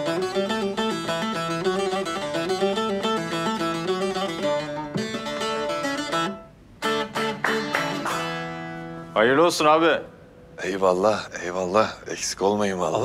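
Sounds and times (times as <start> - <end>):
long-necked lute played fast: 0.0 - 9.2.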